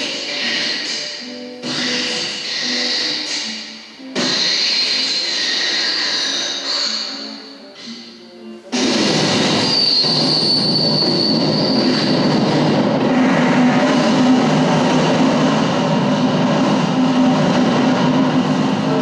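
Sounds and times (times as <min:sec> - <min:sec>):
high metallic squeal: 0:00.0 - 0:19.0
music: 0:00.0 - 0:19.0
loud mechanical rumble: 0:08.7 - 0:19.0.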